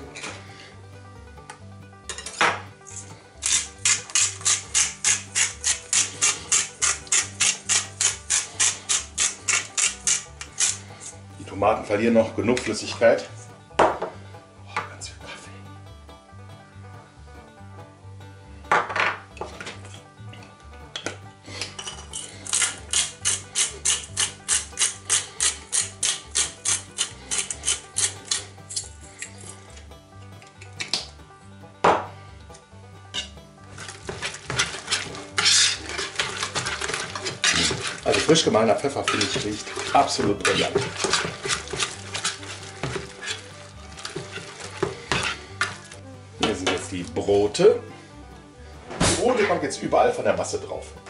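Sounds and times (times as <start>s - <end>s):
background music with bass: 0.0s - 51.0s
spice mill grinding: 2.9s - 11.2s, 21.7s - 29.6s, 33.7s - 46.0s.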